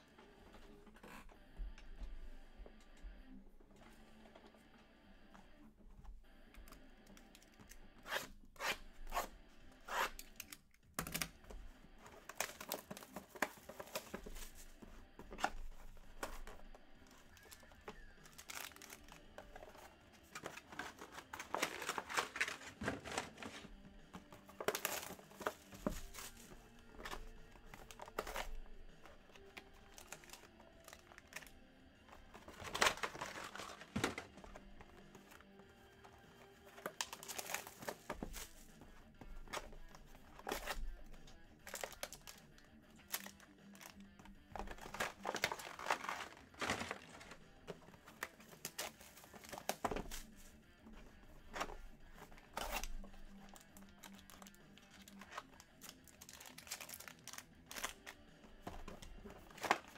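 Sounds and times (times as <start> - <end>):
packaging ripping and crinkling: 17.1 - 23.7, 24.4 - 28.7, 29.3 - 31.6, 32.3 - 35.3, 36.7 - 38.7, 41.6 - 42.4, 44.6 - 47.4, 52.4 - 58.2.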